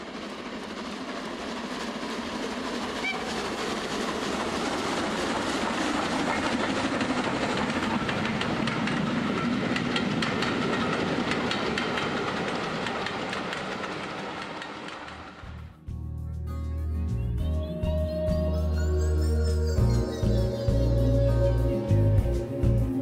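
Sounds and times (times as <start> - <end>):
train rumbling past: 0.0 - 15.9, 17.8 - 23.0
wheels clicking over rail joints: 2.5 - 15.6.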